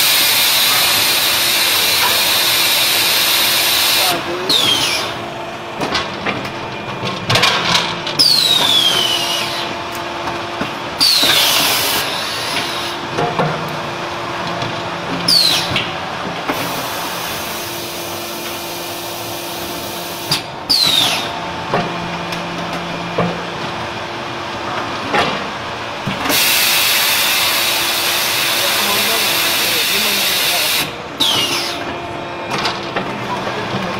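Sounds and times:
machine hum: 0:00.0 - 0:33.9
machine clanks and knocks: 0:05.8 - 0:09.1, 0:13.1 - 0:13.8, 0:31.3 - 0:33.9.

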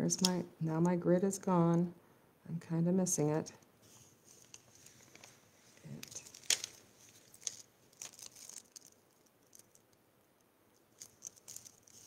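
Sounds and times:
paper crackling and rustling: 0:03.9 - 0:09.9, 0:10.9 - 0:12.0.

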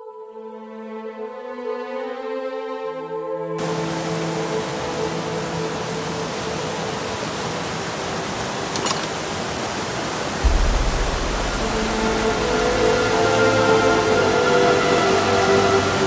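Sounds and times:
stream rushing over boulders: 0:03.6 - 0:16.0
background music with bass: 0:10.4 - 0:15.6.

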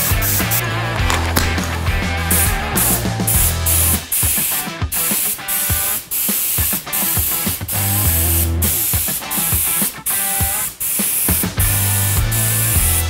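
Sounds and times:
background music: 0:00.0 - 0:05.7
spray gun hissing: 0:01.1 - 0:13.0.

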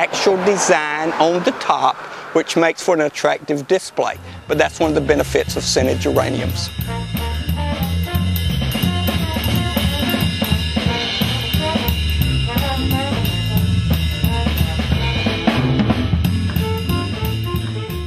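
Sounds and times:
music with drum beat and bass: 0:04.0 - 0:18.0.

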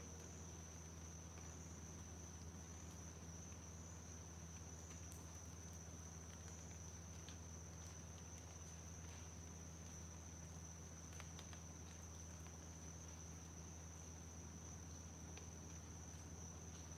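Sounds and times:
insects droning: 0:00.0 - 0:16.9
low steady hum: 0:00.0 - 0:16.9
faint ticks: 0:04.4 - 0:16.9.

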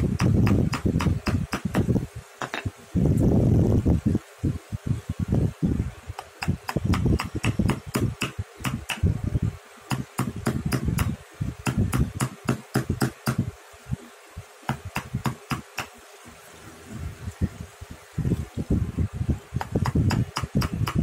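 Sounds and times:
chisel clicking on wood: 0:06.2 - 0:09.0.

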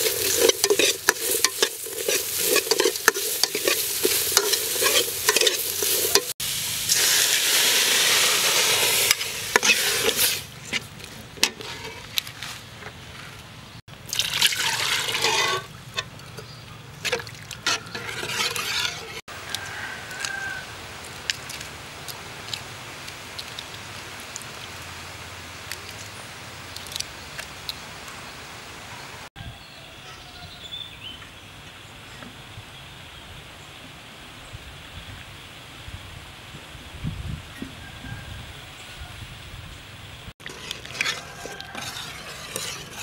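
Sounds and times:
liquid splashing into pot: 0:14.0 - 0:15.7.

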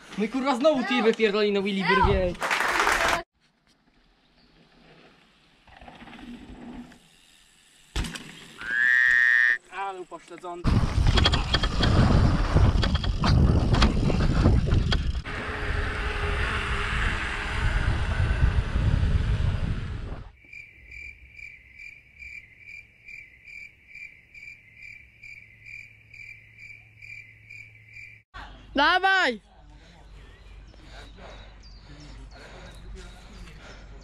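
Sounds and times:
bike rattling over bumps: 0:10.6 - 0:15.9
wind rushing over microphone: 0:10.6 - 0:20.3
cricket chirping: 0:20.4 - 0:28.3.

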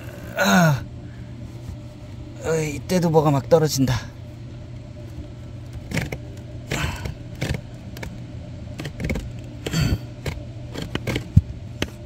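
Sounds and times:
steady low hum: 0:00.0 - 0:12.0
air filter frame scraping and rustling: 0:01.4 - 0:02.4.

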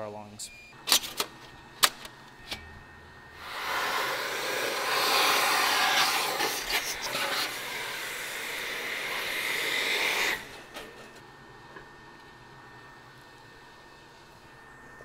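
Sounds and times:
vacuum hose sucking powder: 0:03.3 - 0:10.7.

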